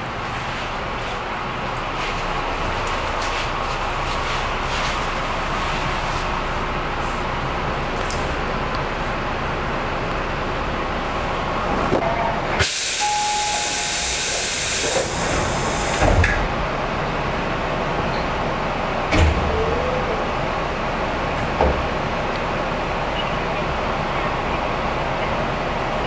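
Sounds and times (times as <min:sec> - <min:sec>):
train running noise: 0:00.0 - 0:26.0
train air system hissing: 0:12.5 - 0:16.3.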